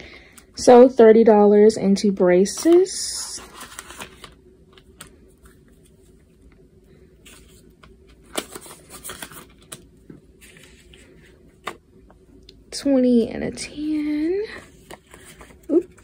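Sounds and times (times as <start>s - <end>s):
paper money and plastic crinkling: 2.4s - 6.2s, 7.2s - 11.8s.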